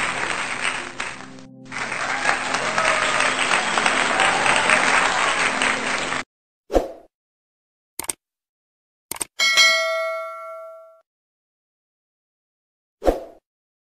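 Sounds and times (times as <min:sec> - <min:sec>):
crowd clapping: 0:00.0 - 0:06.2
quick click: 0:09.1 - 0:09.3.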